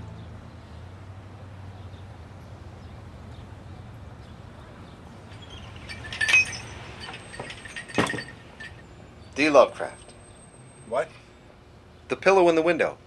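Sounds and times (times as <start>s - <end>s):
low background hum: 0.0s - 13.0s
glass door rattling open: 5.3s - 8.8s.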